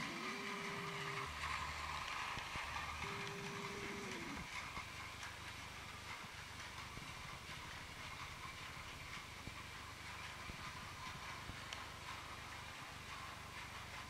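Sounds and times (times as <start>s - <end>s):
toy train motor whine: 0.0s - 14.0s
wheels clicking over track: 0.0s - 14.0s.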